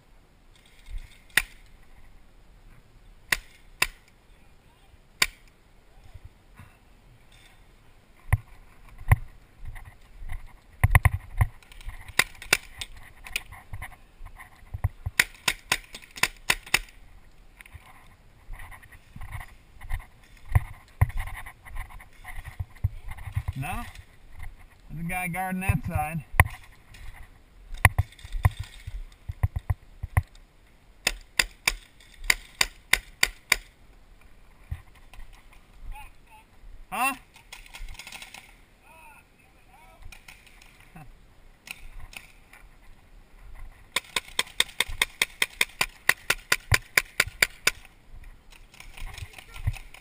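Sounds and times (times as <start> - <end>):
paintball markers firing: 3.3 - 4.1, 5.2 - 5.5, 12.1 - 13.4, 15.1 - 17.0, 31.0 - 33.7, 43.9 - 47.9.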